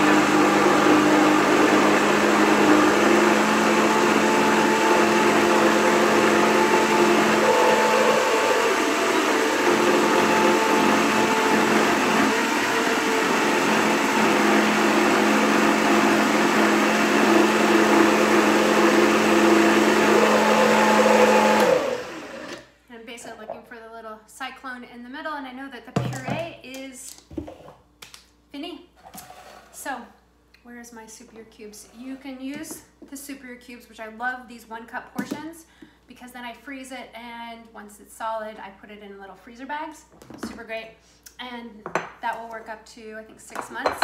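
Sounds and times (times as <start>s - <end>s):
blender motor running: 0.0s - 22.7s.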